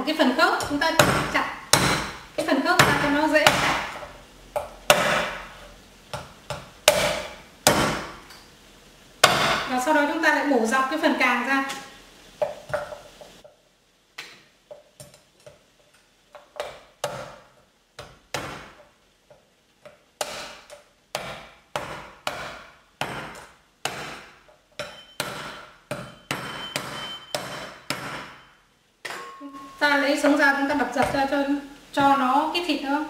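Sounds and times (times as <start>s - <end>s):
cleaver chopping shell on wood: 6.1s - 8.2s.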